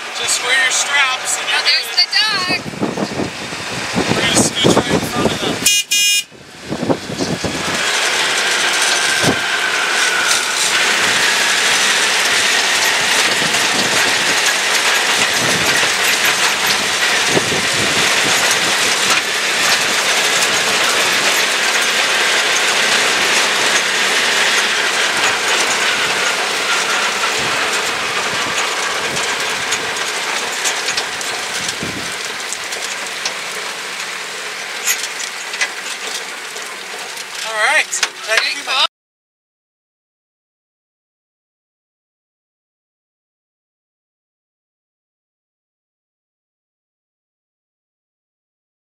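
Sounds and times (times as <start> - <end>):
rattling clatter of buggy ride: 0.0 - 5.7, 6.3 - 38.9
rushing noise: 0.0 - 32.8.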